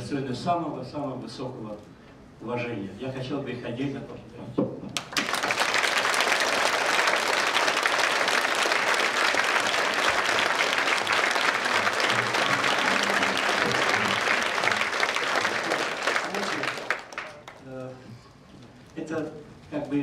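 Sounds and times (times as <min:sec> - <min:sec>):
crowd applauding: 0:05.0 - 0:17.7.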